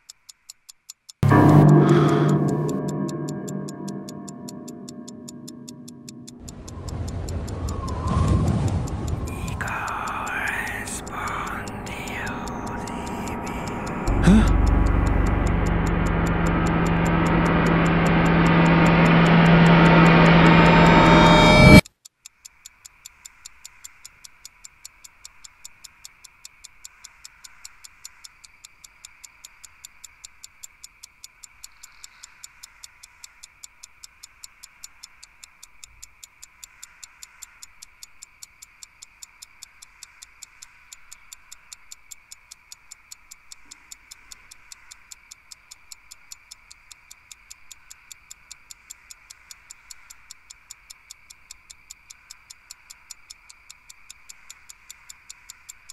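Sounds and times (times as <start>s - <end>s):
clock ticking: 0.0s - 55.9s
faint high hum: 9.2s - 21.8s.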